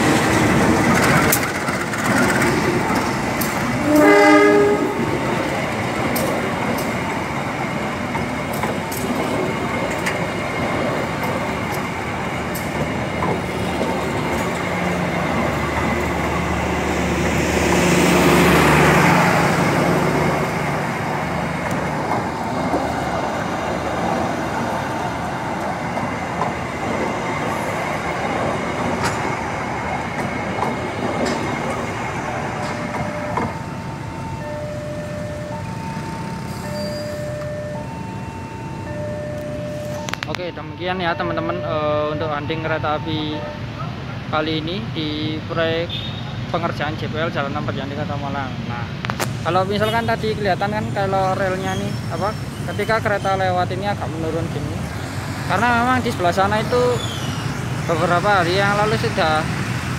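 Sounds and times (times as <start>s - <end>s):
train coaches rolling past: 0.0s - 59.9s
train horn blast: 3.8s - 5.1s.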